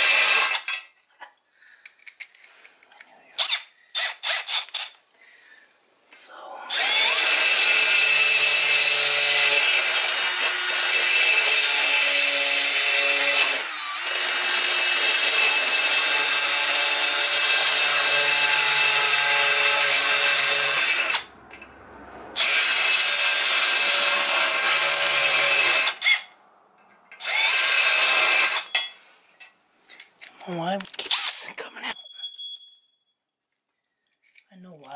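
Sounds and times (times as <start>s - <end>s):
drill reaming aluminium: 0.0s - 0.8s, 3.4s - 5.0s, 6.7s - 21.3s, 22.4s - 26.4s, 27.1s - 29.1s.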